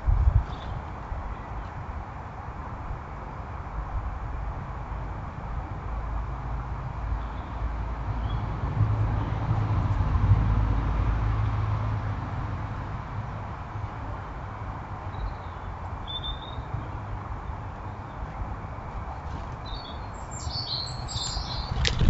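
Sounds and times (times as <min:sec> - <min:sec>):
bird chirp: 0:15.1 - 0:16.9, 0:19.6 - 0:21.9
vehicle engine rumble: 0:16.7 - 0:22.0.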